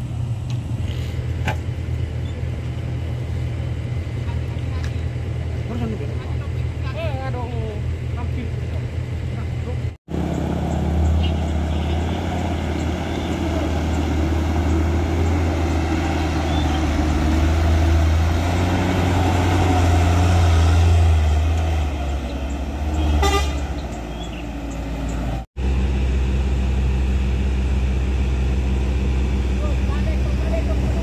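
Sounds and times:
heavy truck engine at low revs: 0:00.0 - 0:31.0
short horn toot: 0:23.0 - 0:23.7.

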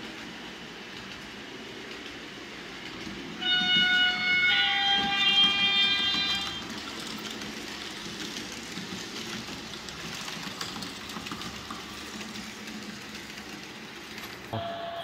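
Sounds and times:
model train rolling on metal track: 0:00.0 - 0:15.0
horn-like tone: 0:03.4 - 0:06.6, 0:14.6 - 0:15.0.

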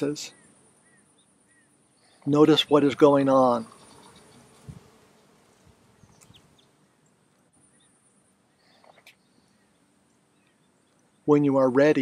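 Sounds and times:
flying insect buzzing: 0:00.6 - 0:09.8
soft high chirps: 0:03.7 - 0:04.8, 0:06.0 - 0:11.2.

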